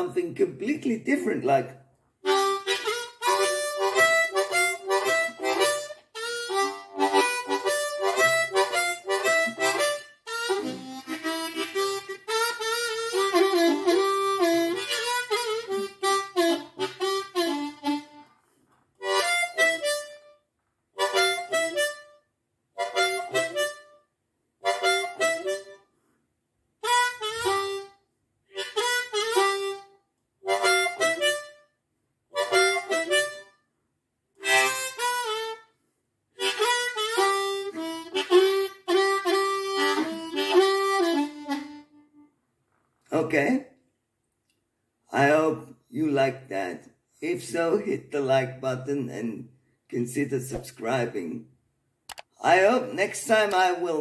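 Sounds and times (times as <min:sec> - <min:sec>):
harmonica playing blues: 0:02.2 - 0:18.4, 0:19.0 - 0:20.4, 0:21.0 - 0:22.2, 0:22.8 - 0:25.9, 0:26.8 - 0:31.7, 0:32.3 - 0:33.6, 0:34.4 - 0:35.8, 0:36.4 - 0:42.3.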